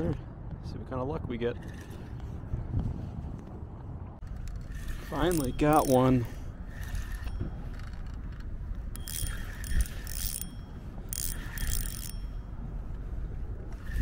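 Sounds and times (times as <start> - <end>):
fishing reel whirring: 4.2 - 12.6, 13.7 - 14.0.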